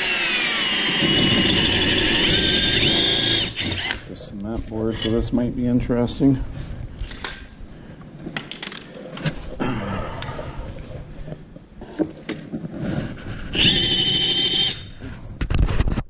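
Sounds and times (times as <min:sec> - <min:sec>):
cordless drill whine: 0:00.0 - 0:04.0, 0:13.5 - 0:15.0.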